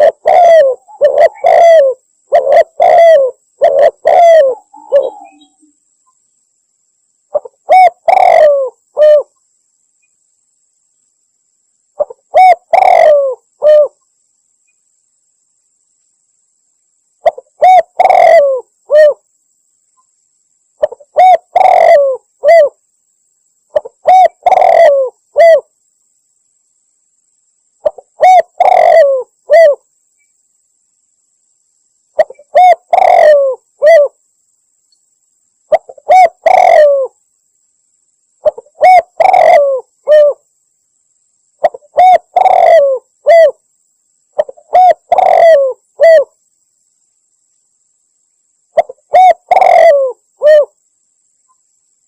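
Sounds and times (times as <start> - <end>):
dove cooing: 0.0 - 5.6, 7.3 - 9.3, 12.0 - 14.0, 17.2 - 19.2, 20.8 - 22.8, 23.7 - 25.7, 27.8 - 29.8, 32.2 - 34.2, 35.7 - 37.2, 38.4 - 40.4, 41.6 - 43.6, 44.4 - 46.3, 48.8 - 50.8.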